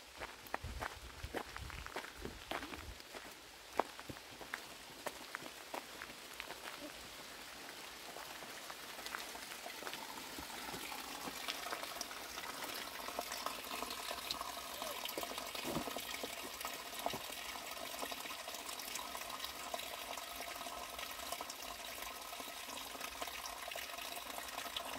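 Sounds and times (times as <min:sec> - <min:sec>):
water trickling and splashing: 0:00.2 - 0:24.9.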